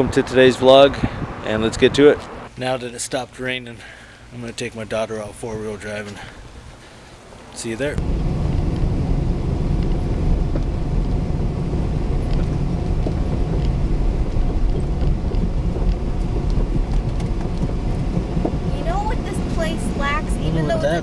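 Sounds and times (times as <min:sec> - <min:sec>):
engine and tyre rumble in car cabin: 0:08.0 - 0:21.0.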